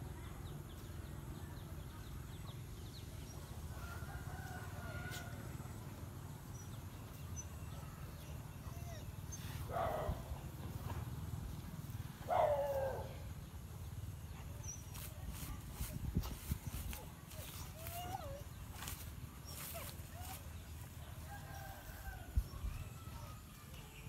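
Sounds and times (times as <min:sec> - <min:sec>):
dog barking: 0:09.7 - 0:10.3, 0:12.3 - 0:13.1.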